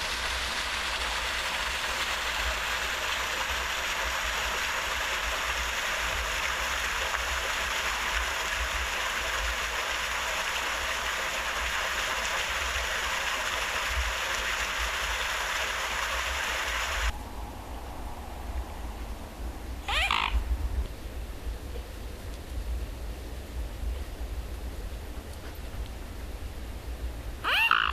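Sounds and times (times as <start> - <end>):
running water rushing: 0.0 - 20.8, 27.4 - 27.9.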